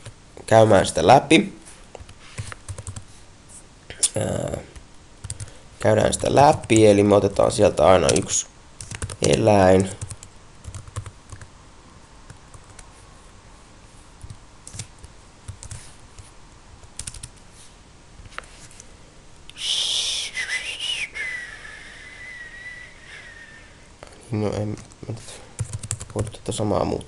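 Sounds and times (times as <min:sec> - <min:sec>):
keyboard typing: 0:02.0 - 0:03.0, 0:05.2 - 0:07.0, 0:08.0 - 0:11.5, 0:14.2 - 0:16.3, 0:16.9 - 0:17.4, 0:25.6 - 0:26.4
person whistling: 0:19.6 - 0:23.7.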